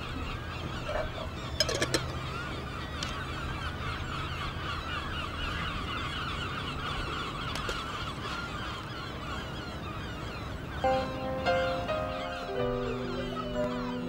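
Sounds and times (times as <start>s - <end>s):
flock of birds chattering: 0.0s - 14.0s
music with held notes: 10.8s - 14.0s.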